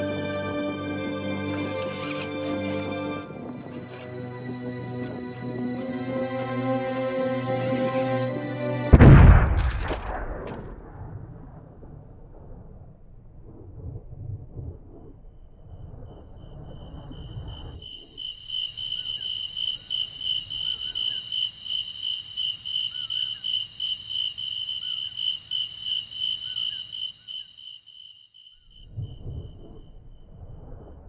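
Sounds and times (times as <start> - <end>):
low rumble: 8.9 - 17.8, 28.9 - 31.0
crickets trilling: 15.8 - 31.0.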